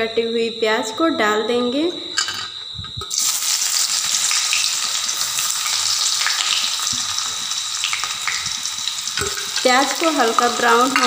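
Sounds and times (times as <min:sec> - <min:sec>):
onion sizzling in hot oil: 0:03.0 - 0:11.0.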